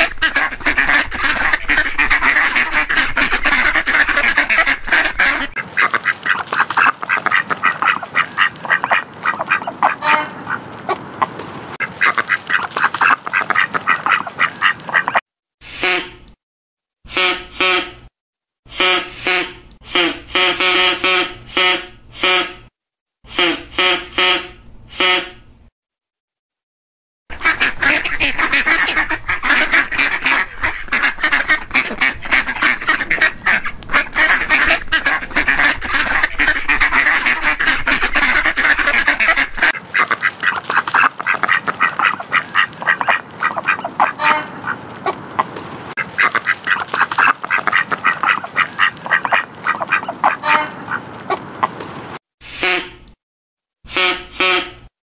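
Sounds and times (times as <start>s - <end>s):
ducks quacking: 0.0s - 15.2s, 27.3s - 52.0s.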